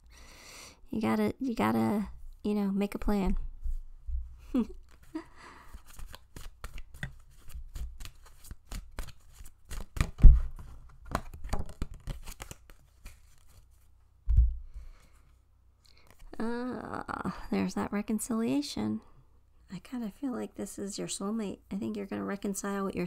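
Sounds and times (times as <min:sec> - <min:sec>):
soft low thump: 0:03.2 - 0:04.4, 0:14.2 - 0:14.7
cards being shuffled: 0:04.8 - 0:13.9.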